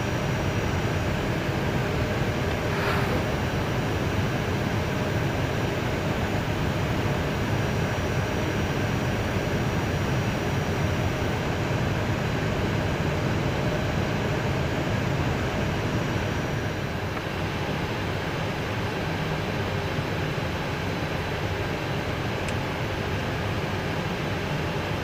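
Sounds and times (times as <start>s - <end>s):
faint high whine: 0.0s - 12.4s.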